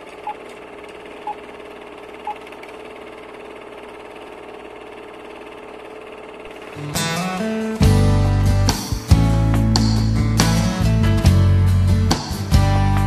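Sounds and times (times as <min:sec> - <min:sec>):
film projector whirring clatter: 0:00.0 - 0:09.2.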